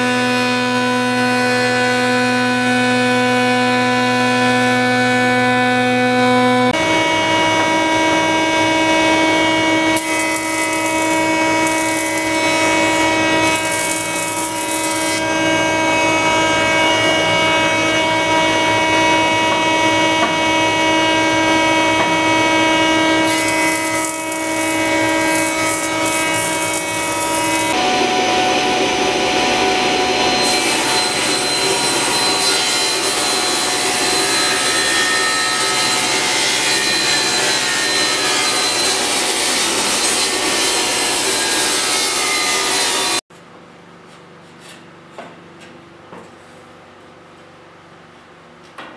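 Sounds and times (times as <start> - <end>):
table saw ripping wood: 0.0 - 43.2
jointer whining: 6.7 - 39.2.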